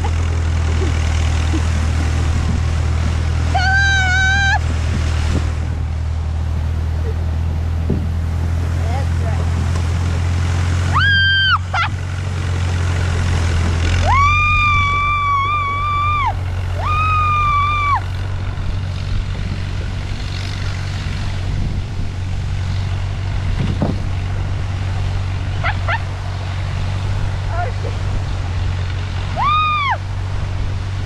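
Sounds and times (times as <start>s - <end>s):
sled rumbling over snow: 0.0s - 31.0s
person whooping: 3.5s - 4.6s, 10.9s - 11.9s, 14.0s - 18.1s, 29.4s - 30.0s.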